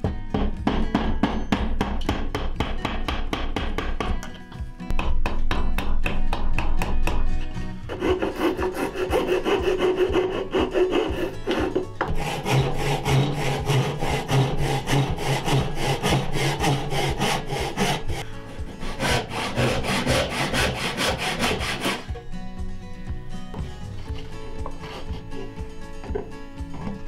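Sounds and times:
hand tool scraping wood: 7.8 - 22.2, 23.9 - 26.3
backsaw cutting wood: 7.9 - 22.2.

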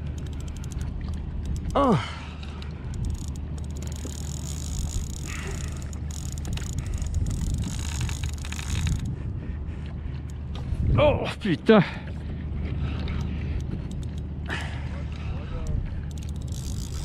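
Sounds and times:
fishing reel drag buzzing: 0.0 - 1.8, 2.5 - 9.1, 16.0 - 17.0
wind and water rumble: 0.0 - 17.0.

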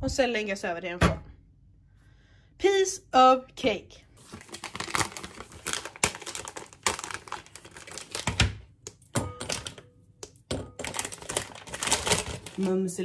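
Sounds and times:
chocolate wrapper crinkling: 4.2 - 13.0.

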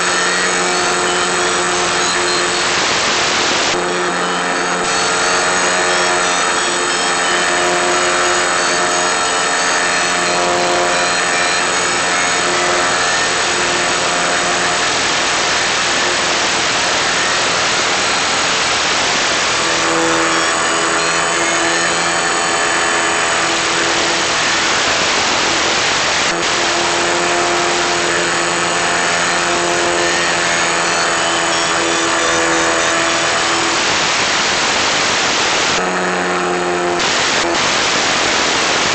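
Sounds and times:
model plane motor buzzing: 0.0 - 38.9.

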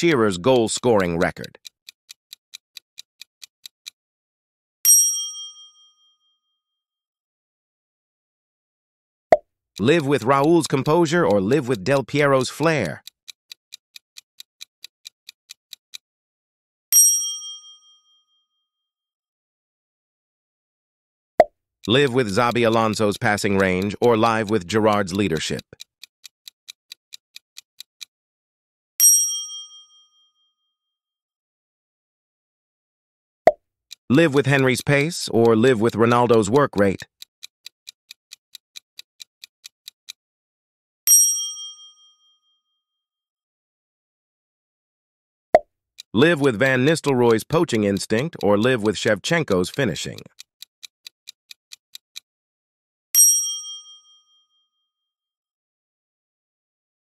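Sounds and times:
clock ticking: 0.0 - 4.0, 9.8 - 16.0, 21.8 - 28.1, 33.9 - 40.2, 46.0 - 52.3
bright bell ding: 4.9 - 5.8, 17.0 - 18.0, 29.0 - 30.0, 41.1 - 42.1, 53.2 - 54.2.

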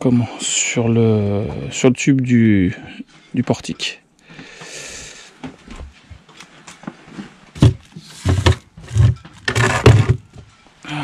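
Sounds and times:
heavy handling thumps: 7.6 - 10.5.

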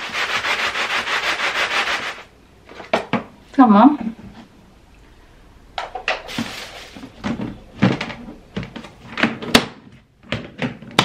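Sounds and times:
plastic cover knocking: 5.8 - 11.0.

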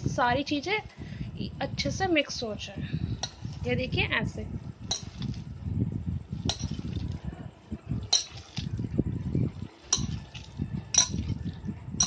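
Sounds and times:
metallic clinks against bowl: 4.9 - 5.4, 6.5 - 7.0, 8.1 - 8.7, 9.9 - 11.4
hand squishing wet mix: 6.4 - 7.2, 8.0 - 8.8, 9.5 - 11.7.

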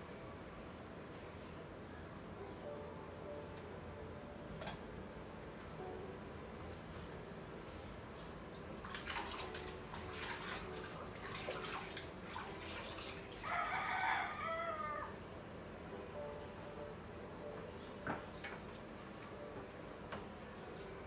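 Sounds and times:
dishes and utensils clinking: 3.6 - 5.0
running water: 8.6 - 14.3
rooster crowing: 13.4 - 15.2.

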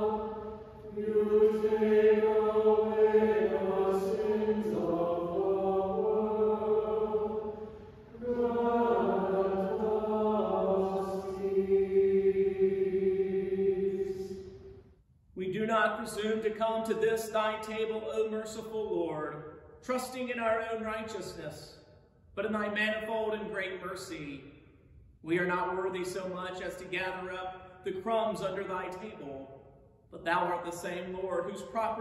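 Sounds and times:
church choir singing: 0.0 - 14.9.

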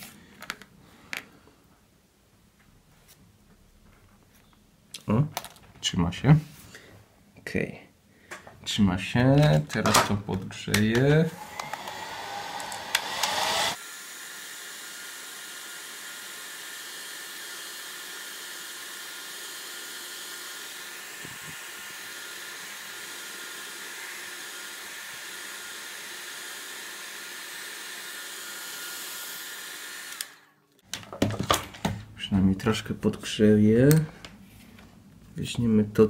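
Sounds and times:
hot-air blower blowing: 11.2 - 30.5.

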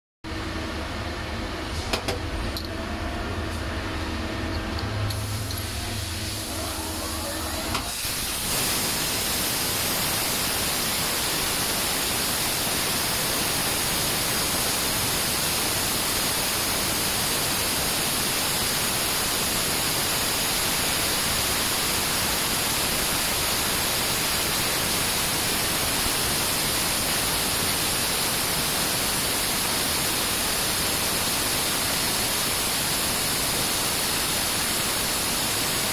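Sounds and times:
machine hum with motor tones: 0.3 - 8.0
coolant spraying hiss: 5.1 - 35.9.

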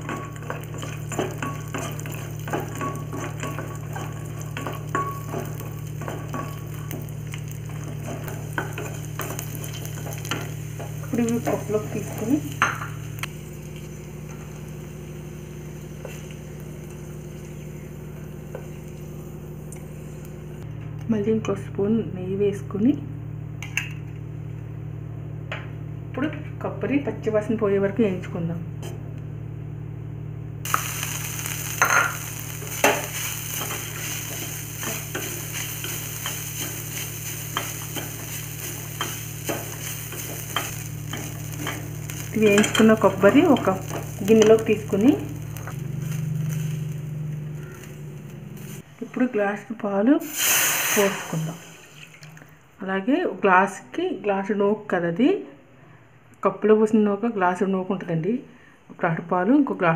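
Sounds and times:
spatula tapping: 0.0 - 11.6
nuts sizzling in hot ghee: 0.0 - 20.6, 30.6 - 49.1, 50.2 - 52.4
steady low hum: 0.0 - 50.2.

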